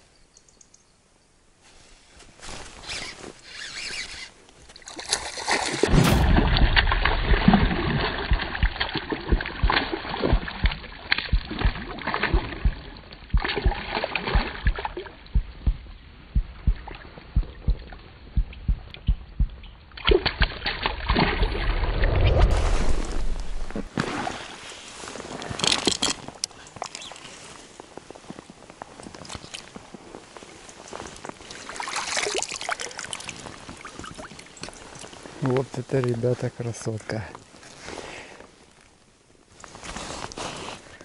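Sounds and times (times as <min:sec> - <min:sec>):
slowed-down water splashing: 0:04.8 - 0:24.8, 0:31.4 - 0:35.1.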